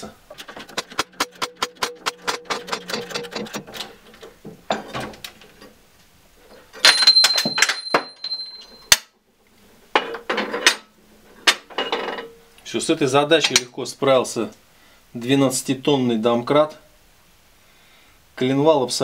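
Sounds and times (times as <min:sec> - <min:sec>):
sharp loud metal crack: 0:00.4 - 0:03.6
hydraulic jack clicking: 0:00.4 - 0:04.4.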